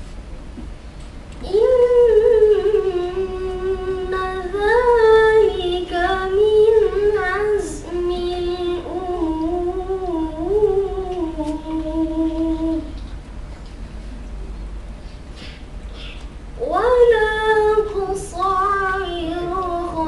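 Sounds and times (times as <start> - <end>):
boy reciting melodically: 1.4 - 13.1, 16.0 - 20.0.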